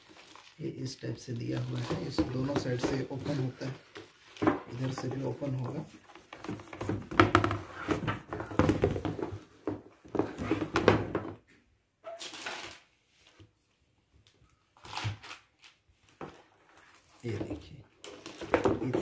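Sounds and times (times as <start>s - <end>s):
cardboard rustling and sliding: 1.6s - 9.5s.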